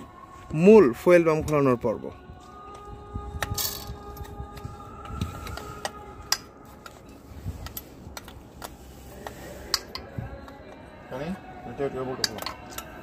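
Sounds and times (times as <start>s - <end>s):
hand tools clicking on metal: 3.4s - 7.0s, 7.6s - 10.7s, 12.2s - 13.0s.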